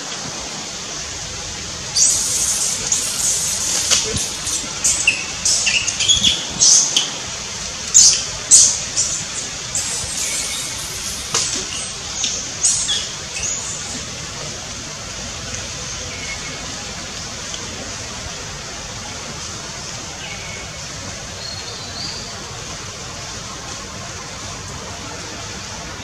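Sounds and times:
monkeys screaming: 1.9s - 6.9s.

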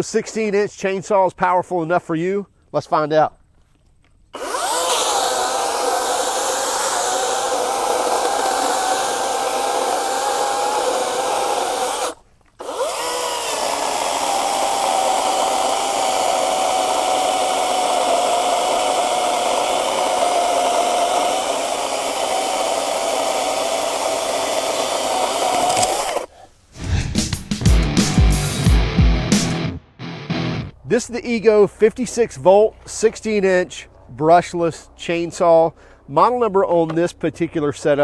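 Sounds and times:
chain rasping through wood: 4.4s - 26.3s
electric chainsaw motor whine: 4.4s - 26.3s.

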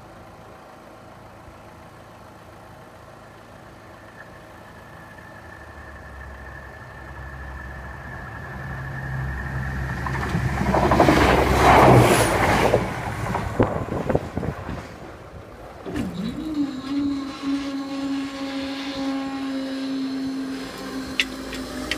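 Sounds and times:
train engine rumble: 0.0s - 21.9s
thin steady high tone: 3.7s - 10.0s
train wheels clattering over rails: 9.4s - 15.1s.

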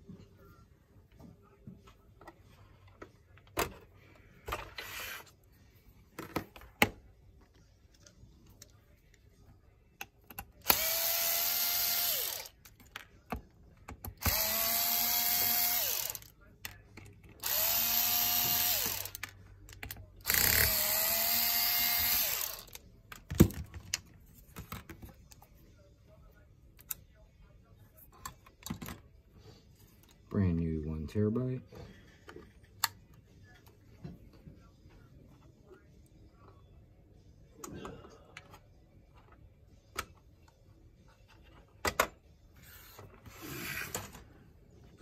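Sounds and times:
electric screwdriver whine: 10.7s - 12.5s, 14.2s - 16.2s, 17.4s - 19.2s, 20.3s - 22.7s.

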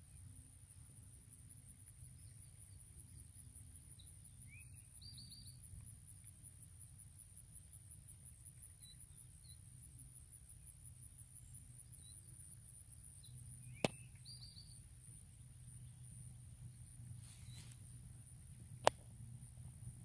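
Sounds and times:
insect trill: 0.0s - 20.0s
faint bird chirps: 1.9s - 5.7s, 8.5s - 9.8s, 13.2s - 18.0s
sharp click: 18.8s - 19.0s.

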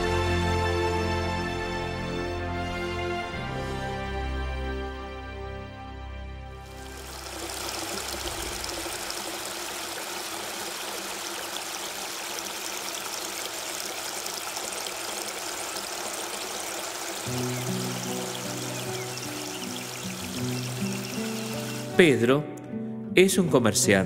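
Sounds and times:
music: 0.0s - 8.2s, 17.2s - 24.0s.

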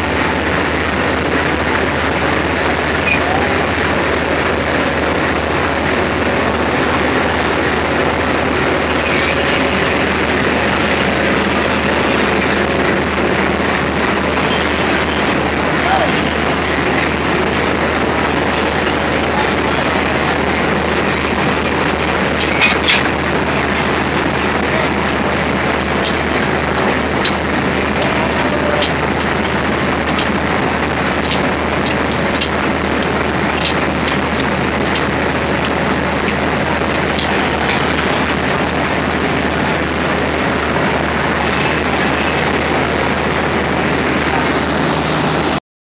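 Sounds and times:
diesel locomotive idling: 0.0s - 45.6s
brake hoses knocking: 25.9s - 38.2s.

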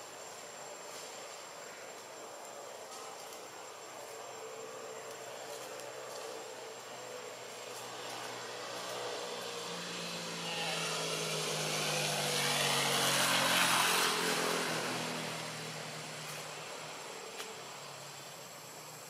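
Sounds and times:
passing vehicle engine droning: 4.3s - 18.8s.

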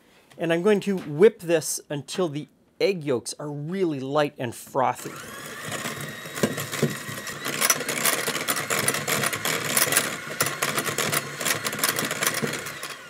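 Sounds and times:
electric hand mixer running: 5.0s - 13.0s.

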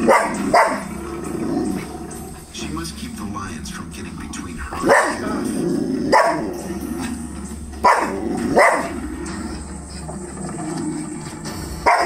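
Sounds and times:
dog barking: 0.0s - 1.0s, 4.8s - 5.4s, 6.0s - 6.6s, 7.8s - 9.0s.

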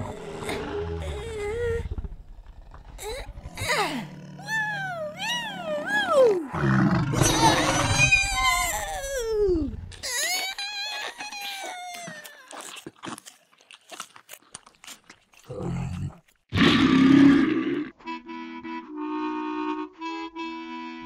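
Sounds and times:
apple crunching and chewing: 9.9s - 16.4s
reedy wind instrument chords: 18.0s - 21.0s.

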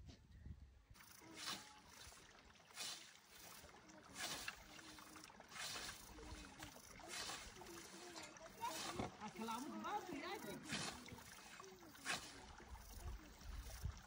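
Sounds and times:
scythe swishing through grass: 1.2s - 9.1s, 10.6s - 12.6s.

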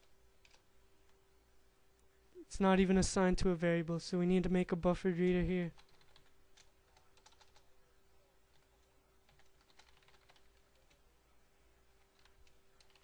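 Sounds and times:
faint keyboard typing: 0.0s - 1.2s, 5.6s - 11.1s, 11.9s - 13.0s.

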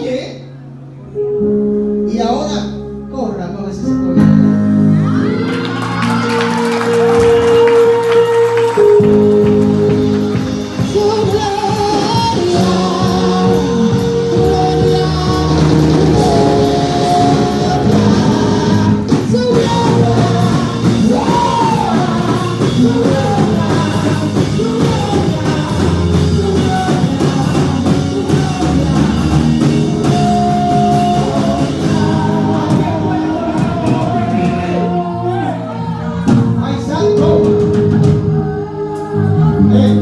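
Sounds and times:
people singing worship song: 5.2s - 36.6s, 37.6s - 40.0s
steady drum beat: 8.7s - 35.2s.

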